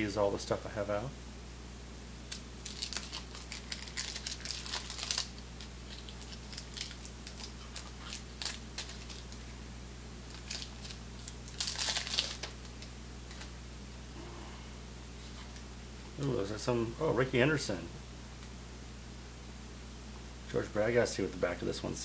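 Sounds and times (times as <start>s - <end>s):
paper wrapper crinkling and tearing: 2.3s - 9.4s, 10.2s - 13.5s.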